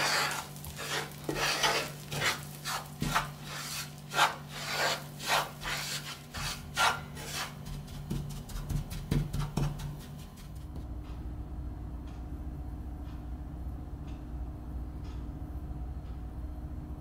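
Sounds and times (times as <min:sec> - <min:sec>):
wooden spoon scraping a frying pan: 0:00.0 - 0:10.4.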